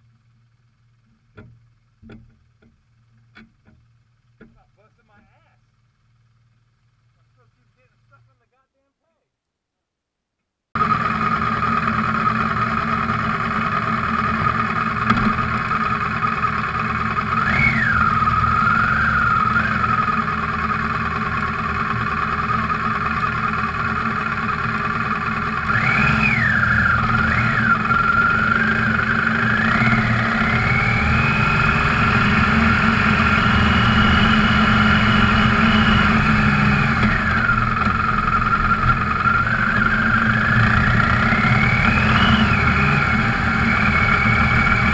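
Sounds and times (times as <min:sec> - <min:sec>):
motorcycle engine revving: 0:10.8 - 0:44.9.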